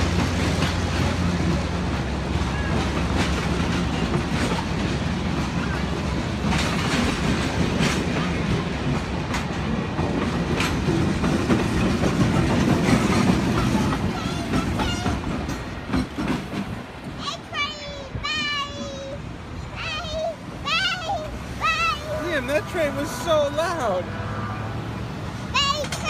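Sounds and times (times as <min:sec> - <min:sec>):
wheels clicking over rail joints: 0:00.0 - 0:19.2, 0:25.5 - 0:26.0
train wheels rumbling on rails: 0:00.0 - 0:26.0.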